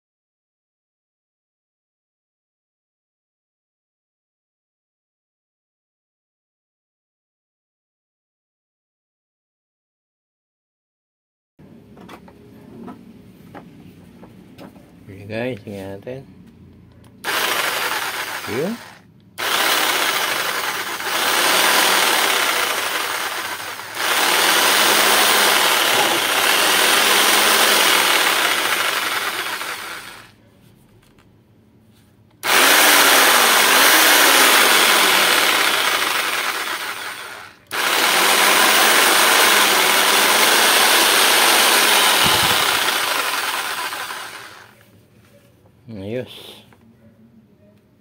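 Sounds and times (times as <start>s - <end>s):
jigsaw motor running: 17.2s - 30.3s, 32.4s - 44.8s.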